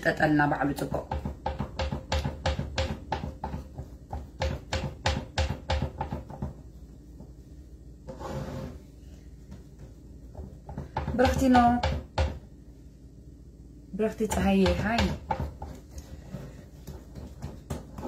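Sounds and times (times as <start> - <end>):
fingertips patting dough in metal pan: 0.0 - 7.6, 9.4 - 12.6, 14.0 - 18.0.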